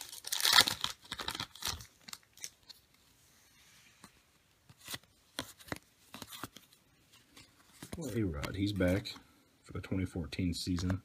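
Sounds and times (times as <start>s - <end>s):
trading cards sliding and snapping: 4.7s - 8.5s.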